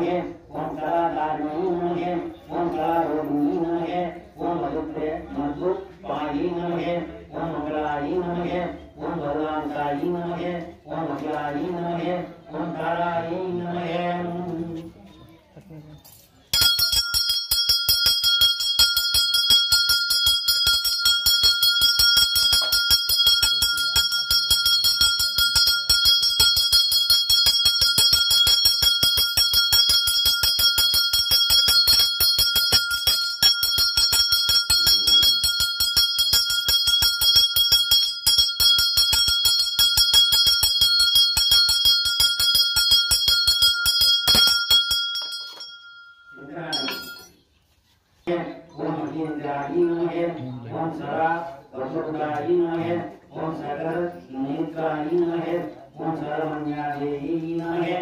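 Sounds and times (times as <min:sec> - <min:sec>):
hand bell ringing rapidly: 0:16.5 - 0:47.4.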